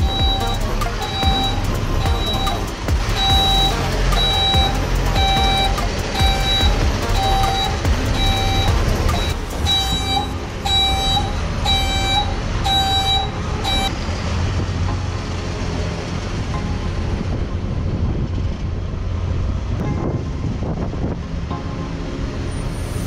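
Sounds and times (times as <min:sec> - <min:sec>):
truck reversing alarm beeping: 0:00.0 - 0:14.1
engine running: 0:00.0 - 0:23.0.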